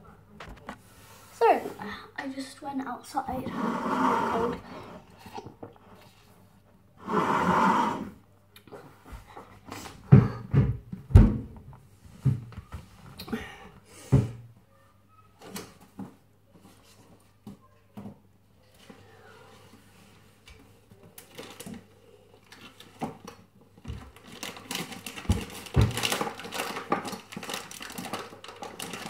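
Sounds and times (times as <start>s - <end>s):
slurp through a straw: 3.4s - 6.4s, 7.0s - 8.2s
thumps on kitchen counter: 10.1s - 11.6s.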